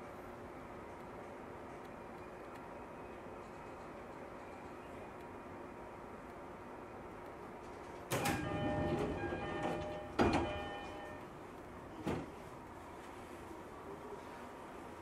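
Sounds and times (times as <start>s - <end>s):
sliding doors thudding shut: 8.1s - 11.0s, 12.0s - 12.4s
train door chime: 8.1s - 11.2s.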